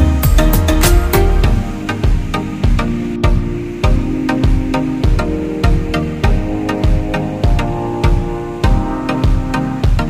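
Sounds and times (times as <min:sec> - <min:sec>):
instrumental music with drum beat: 0:00.0 - 0:10.0.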